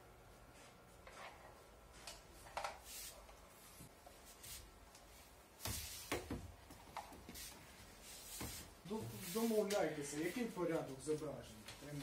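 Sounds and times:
soft rustling: 2.8 - 12.0.

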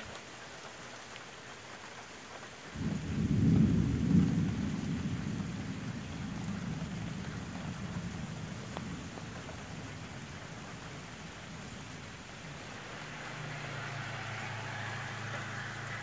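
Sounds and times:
steady rain: 0.0 - 16.0
thunder rumbling: 2.8 - 16.0.

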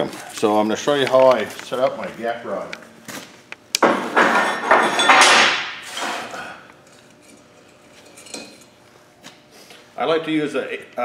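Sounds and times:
welding rods clattering: 3.8 - 8.7.

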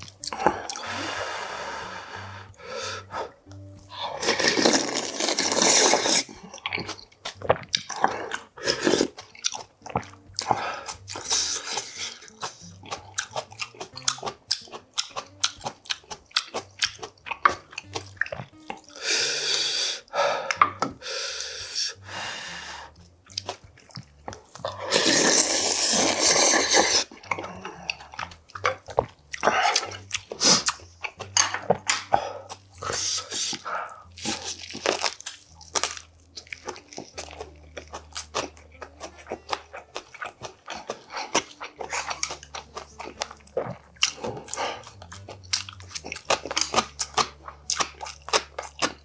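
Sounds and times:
wet chewing: 0.0 - 0.9, 2.5 - 21.0, 22.9 - 49.0
person slurping noodle soup: 3.9 - 6.4, 7.9 - 9.2, 10.4 - 12.6, 24.6 - 28.1, 29.4 - 30.8, 31.4 - 34.8.

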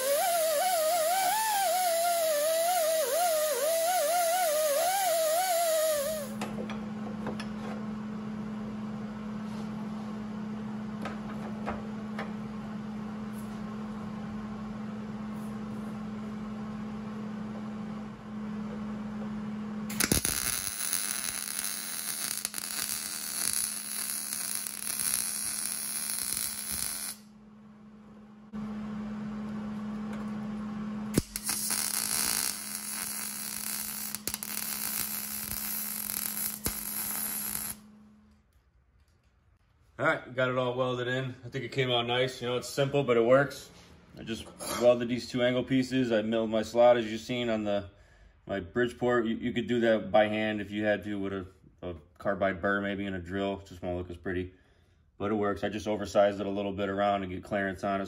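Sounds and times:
welder arc crackling and sizzling: 0.0 - 6.4, 19.9 - 27.3, 31.1 - 37.9.

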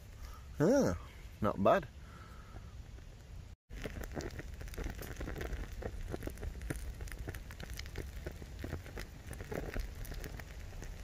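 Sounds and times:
fire crackling and ticking: 2.8 - 11.0
wind rumble on microphone: 3.2 - 11.0.

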